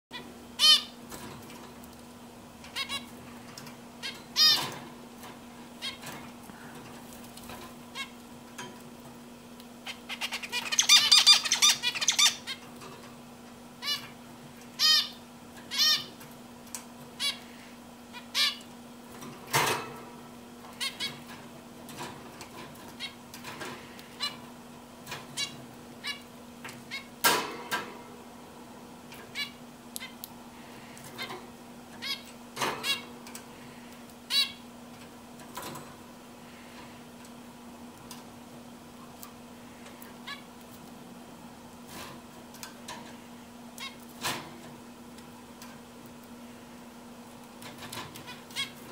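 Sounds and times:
steady low hum: 0.1s - 48.9s
finch calling: 9.9s - 12.6s.

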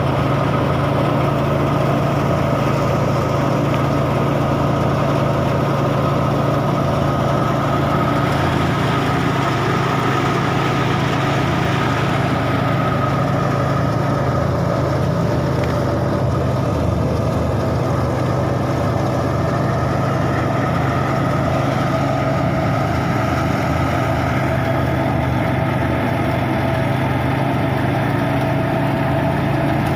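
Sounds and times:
diesel engine droning: 0.0s - 29.9s
threshing drum whine: 0.0s - 29.9s.

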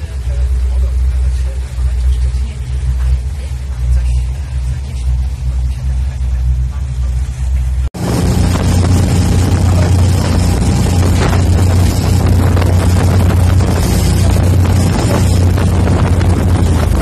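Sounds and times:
churning water: 0.0s - 17.0s
motorboat engine drone: 0.0s - 17.0s
wind rushing: 8.0s - 17.0s.

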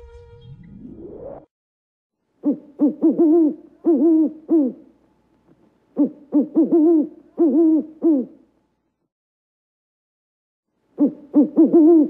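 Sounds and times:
owl hooting: 2.4s - 4.9s, 6.0s - 8.4s, 11.0s - 12.0s.

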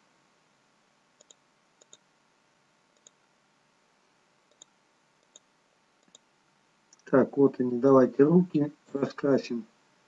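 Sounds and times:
computer mouse clicks: 1.2s - 2.0s, 2.9s - 3.2s, 4.5s - 6.3s.

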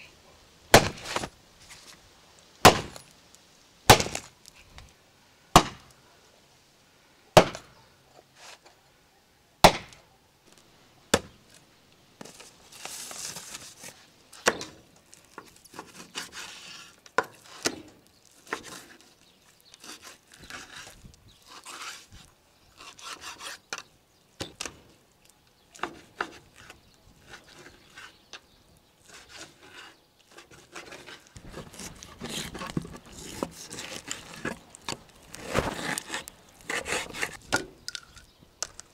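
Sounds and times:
axe chopping ribs on wood: 0.7s - 1.3s, 2.6s - 3.0s, 3.9s - 4.3s, 5.6s - 5.9s, 7.4s - 7.7s, 9.6s - 10.0s.

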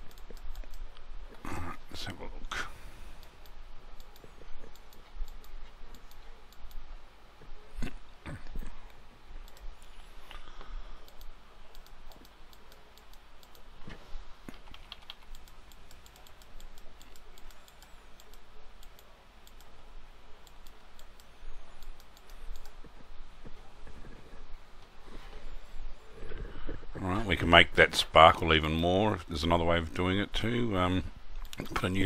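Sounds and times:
keyboard and mouse clicks: 0.0s - 1.4s, 3.2s - 6.8s, 8.4s - 19.8s, 20.4s - 24.2s, 31.4s - 32.0s.

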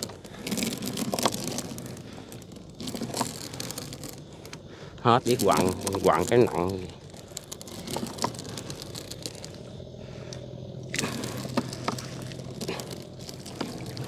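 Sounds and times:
low steady hum: 0.0s - 14.0s
net scraping and crackling over boat: 0.0s - 14.0s.

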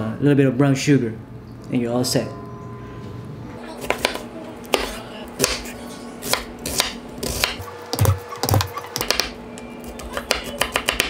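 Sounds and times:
knife chopping on wooden board: 3.8s - 9.4s, 10.2s - 11.0s.

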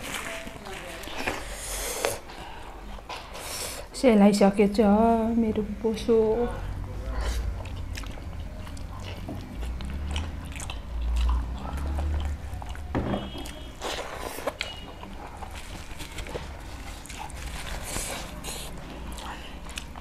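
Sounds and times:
person chewing food: 7.0s - 20.0s.

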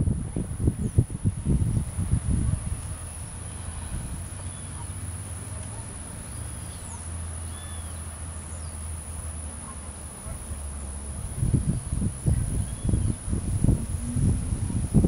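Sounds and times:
insect drone: 0.1s - 15.0s
faint bird chirps: 6.3s - 8.8s
low steady hum: 10.0s - 15.0s.

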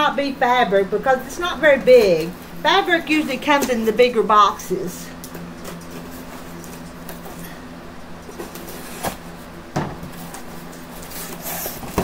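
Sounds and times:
steady low hum: 0.0s - 12.0s
cardboard scraping and rustling: 8.3s - 9.5s, 10.1s - 12.0s.

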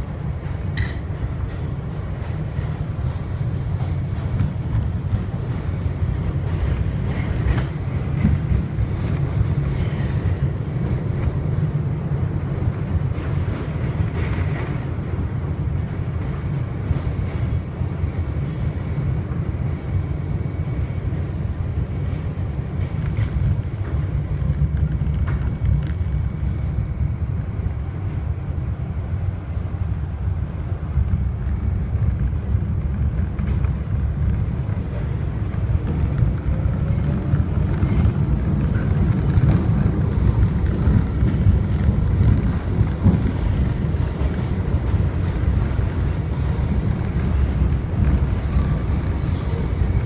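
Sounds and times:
train wheels rumbling on rail: 0.0s - 50.0s.

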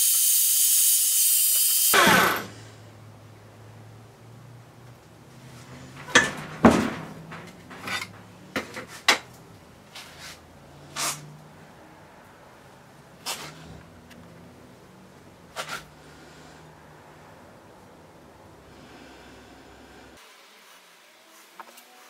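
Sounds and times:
tools knocking and clinking: 5.9s - 9.4s.

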